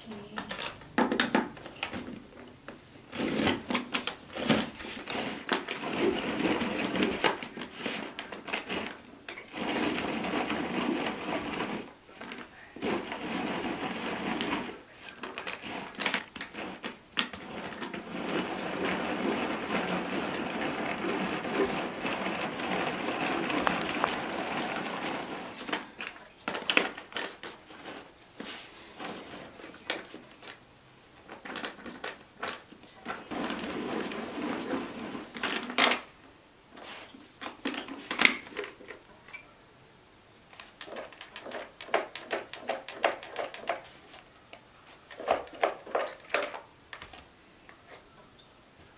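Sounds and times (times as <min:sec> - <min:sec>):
hand-cranked food chopper whirring: 0:03.2 - 0:25.9.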